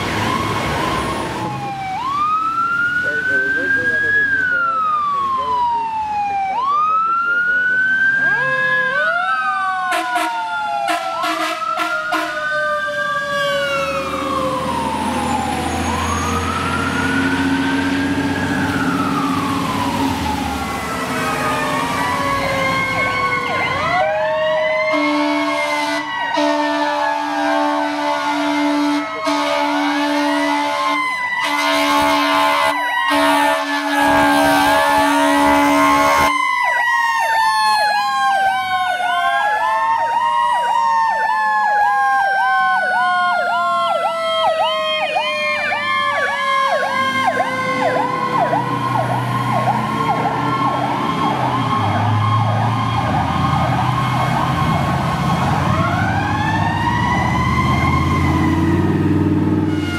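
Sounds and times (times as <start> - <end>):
fire engine sirens wailing: 0.0 - 59.9
air horn blasts: 9.9 - 12.5, 24.9 - 36.3, 59.7 - 59.9.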